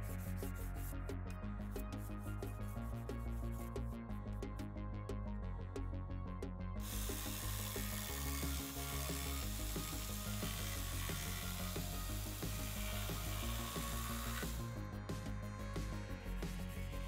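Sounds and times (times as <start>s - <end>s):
background music: 0.0s - 17.0s
jigsaw cutting plywood: 6.9s - 14.6s.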